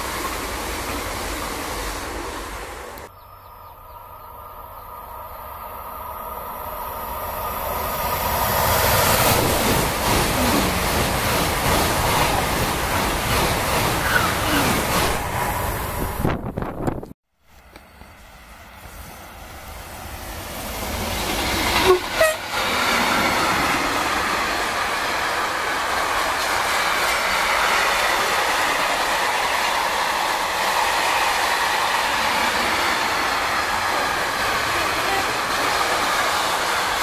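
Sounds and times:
freight train wheels rolling: 0:00.0 - 0:03.1, 0:04.2 - 0:37.0
locomotive horn: 0:21.7 - 0:22.7, 0:34.7 - 0:35.5.

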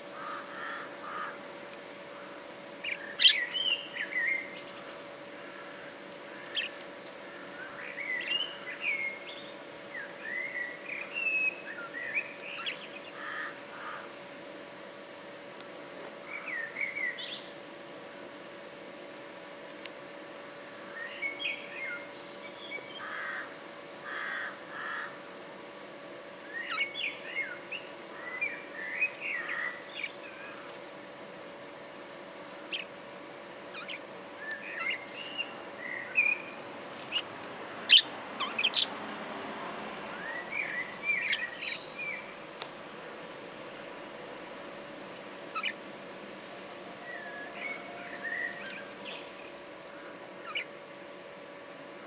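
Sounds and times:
budgerigars chirping: 0:33.8 - 0:34.0, 0:34.7 - 0:35.4, 0:37.9 - 0:38.9, 0:45.5 - 0:45.8, 0:50.4 - 0:50.7.

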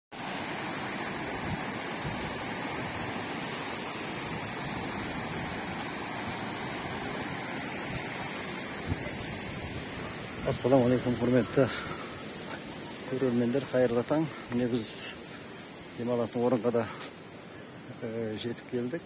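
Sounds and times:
river rapids rushing: 0:00.2 - 0:14.1.

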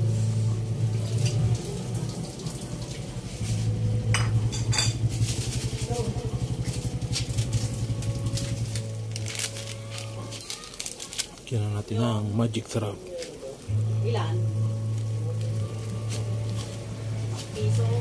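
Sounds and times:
broth boiling and bubbling: 0:00.0 - 0:11.6.

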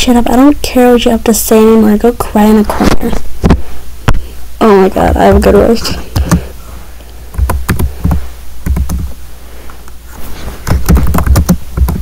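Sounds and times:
steady low hum: 0:00.0 - 0:12.0
fingers tapping on touchscreen: 0:06.1 - 0:06.4, 0:07.3 - 0:09.2, 0:10.6 - 0:12.0.

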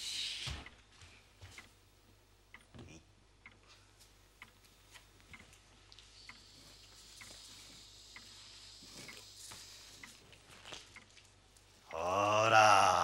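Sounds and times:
low steady hum: 0:00.0 - 0:13.0
clock ticking: 0:01.4 - 0:10.2.

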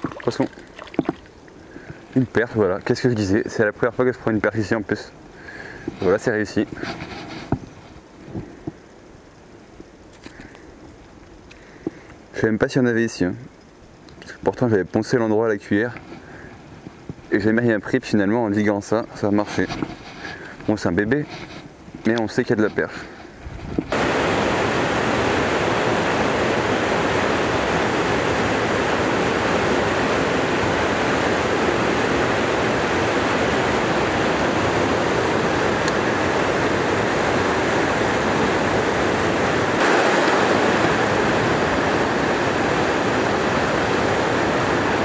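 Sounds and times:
river rushing over rocks: 0:00.0 - 0:06.8, 0:23.9 - 0:45.0.

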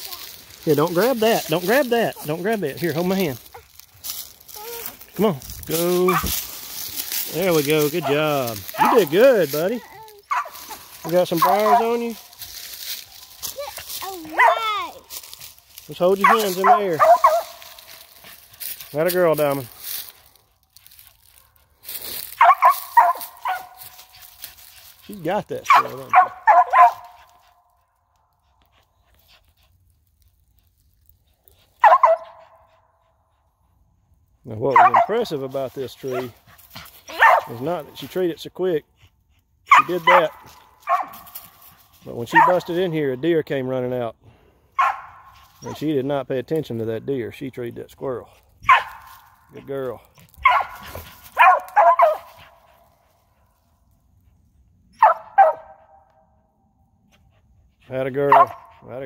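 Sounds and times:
dog barking: 0:06.1 - 0:06.4, 0:08.0 - 0:09.2, 0:10.3 - 0:10.8, 0:11.4 - 0:12.0, 0:14.2 - 0:14.9, 0:16.2 - 0:17.6, 0:22.3 - 0:23.9, 0:25.7 - 0:27.3, 0:31.8 - 0:32.7, 0:34.7 - 0:35.2, 0:36.1 - 0:36.4, 0:37.1 - 0:37.6, 0:39.7 - 0:41.3, 0:42.3 - 0:42.7, 0:44.8 - 0:45.3, 0:48.7 - 0:49.1, 0:50.4 - 0:52.5, 0:55.0 - 0:56.0, 0:58.3 - 0:58.8.

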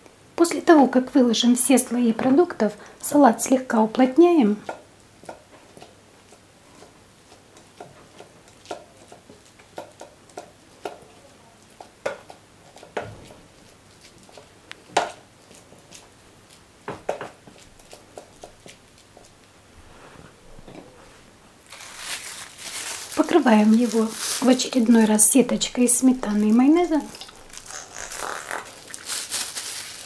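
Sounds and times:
spatula tapping food: 0:04.5 - 0:13.4, 0:14.3 - 0:15.2, 0:16.8 - 0:19.3
plastic rustling: 0:17.5 - 0:30.0.

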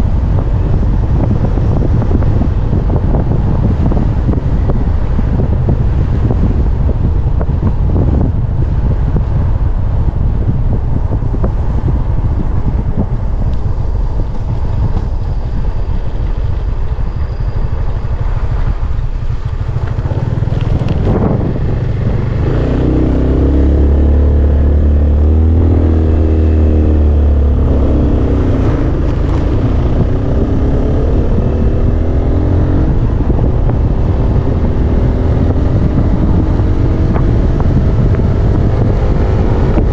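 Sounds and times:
wind buffeting microphone: 0:00.0 - 0:39.9
scooter engine: 0:13.7 - 0:36.4.

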